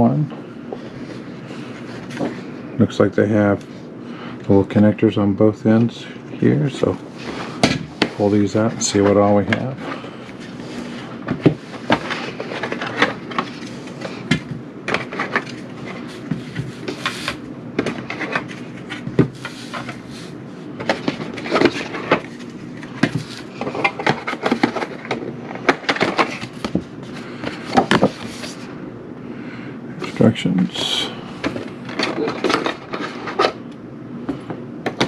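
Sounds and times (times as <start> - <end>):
cardboard rustling: 7.2 - 28.7.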